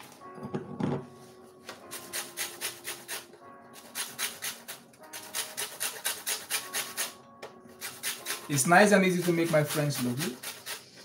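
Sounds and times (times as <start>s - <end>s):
lemon grating on metal grater: 1.9s - 3.2s, 3.8s - 7.1s, 7.8s - 11.0s.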